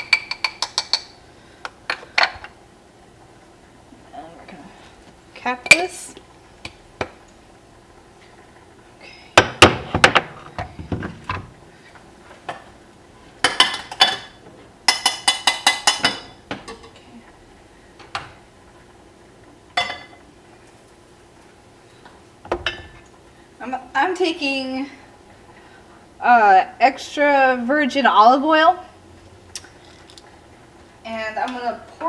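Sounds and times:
dishes and utensils clattering: 13.4 - 17.0.

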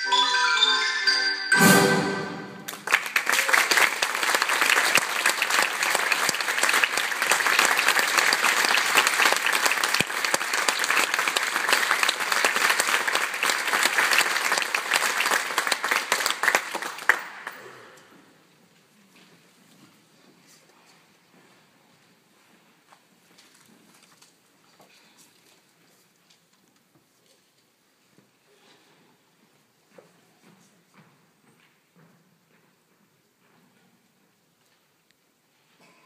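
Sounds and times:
brass band with mallet percussion: 0.0 - 2.7
audience applauding: 2.6 - 17.8.

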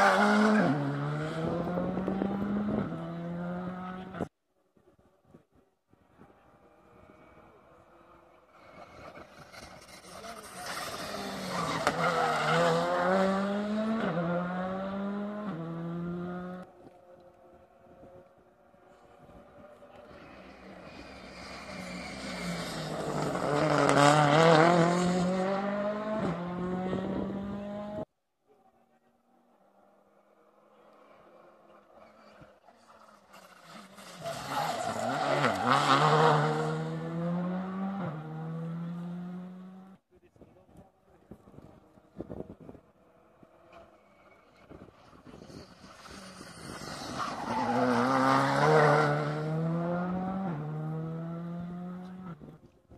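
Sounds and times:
rally car engine accelerating: 0.0 - 4.3, 6.9 - 16.7, 19.2 - 28.1, 30.7 - 40.0, 43.2 - 52.5.

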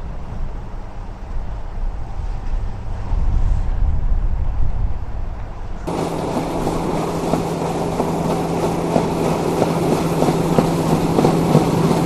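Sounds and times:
tractor snowblower engine drone: 5.9 - 12.0.

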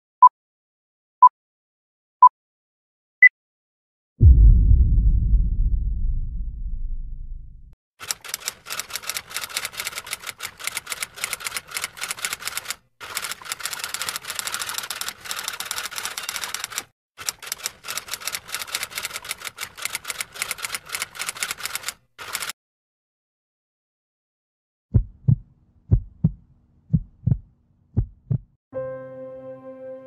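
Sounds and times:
low rumble: 4.2 - 7.8
typewriter keys clacking: 8.0 - 22.5.

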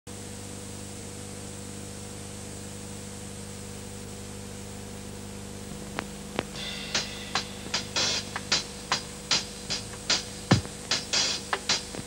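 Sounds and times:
low electrical hum: 0.1 - 12.0
tape hiss: 5.0 - 12.0.

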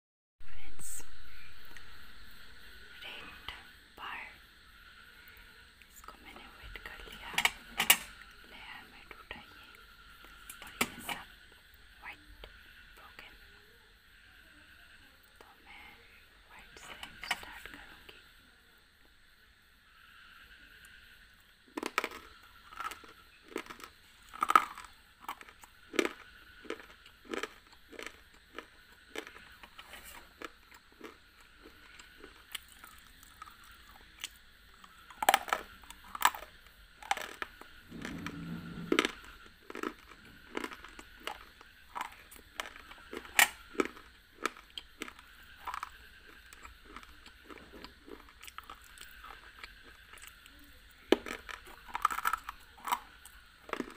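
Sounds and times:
soft chewing: 19.9 - 53.9.

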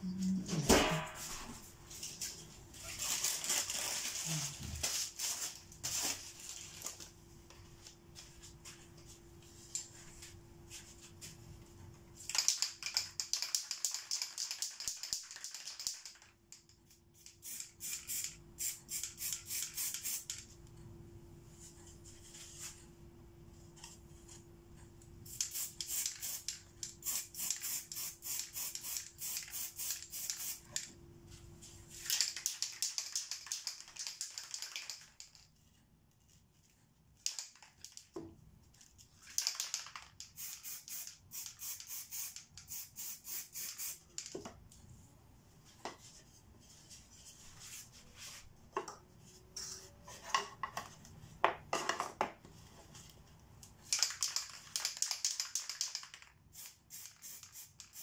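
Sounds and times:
spray can ball rattling: 12.2 - 20.4, 25.3 - 30.8, 32.0 - 35.5, 39.3 - 44.4, 53.9 - 58.0
spray paint hissing: 17.2 - 20.3, 25.3 - 30.7, 40.4 - 44.1, 55.0 - 58.0.

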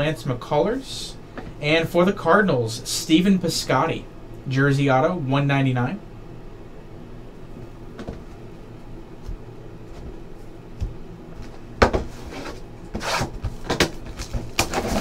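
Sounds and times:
cardboard boxes being handled: 10.8 - 15.0
sharp knocks and scrapes: 11.8 - 15.0.

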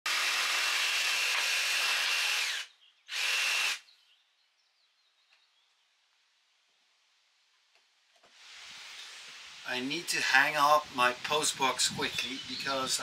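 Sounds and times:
jigsaw cutting wood: 0.0 - 3.8.

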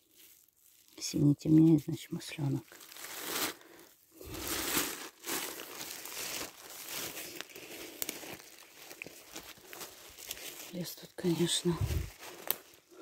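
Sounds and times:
plastic bag crinkling: 0.0 - 1.8, 2.4 - 13.0
footsteps through dry leaves: 0.0 - 13.0
twig clicks: 7.4 - 10.6, 12.1 - 12.8.

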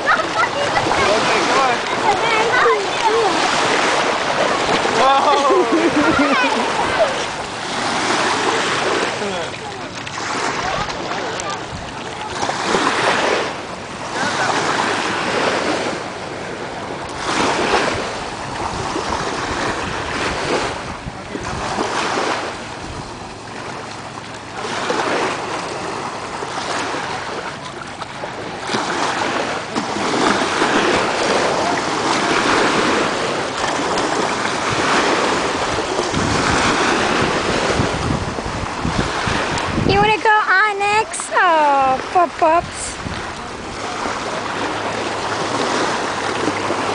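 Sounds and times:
wind on microphone: 0.0 - 24.0, 28.3 - 41.1, 41.7 - 46.9
small waves washing onto shore: 0.0 - 46.9.

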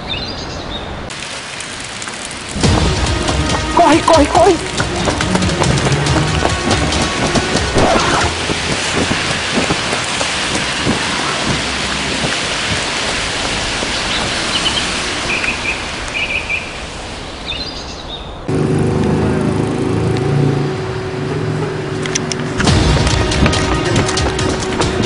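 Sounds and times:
heavy rain on street: 0.0 - 25.0.

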